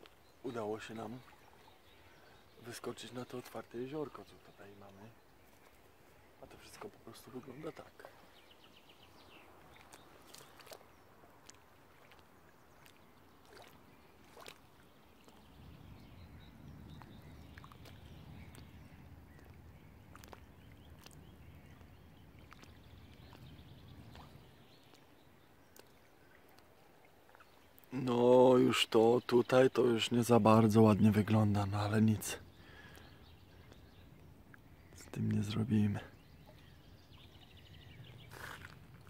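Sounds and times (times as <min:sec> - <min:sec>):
faint wind: 0:00.0 - 0:39.0
wind rumble on microphone: 0:15.4 - 0:24.7.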